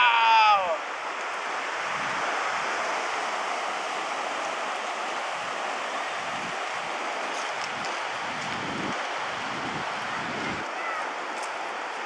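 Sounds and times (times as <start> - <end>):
ocean surf on sand: 0.0 - 12.0.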